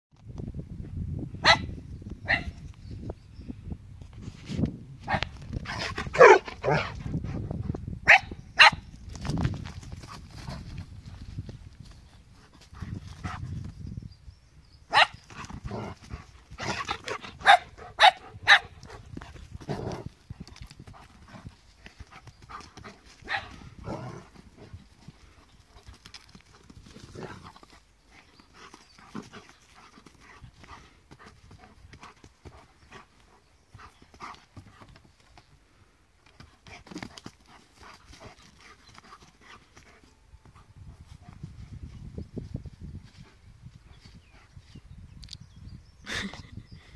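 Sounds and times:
dogs barking: 6.1s - 7.0s, 14.9s - 15.2s, 16.7s - 19.0s, 23.2s - 24.0s
paws scuffling in grass: 9.0s - 13.9s, 15.2s - 35.6s.

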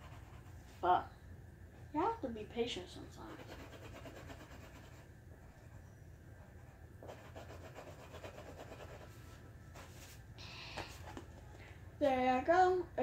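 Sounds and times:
low steady hum: 0.0s - 13.0s
colouring utensil rubbing on paper: 3.2s - 5.1s.

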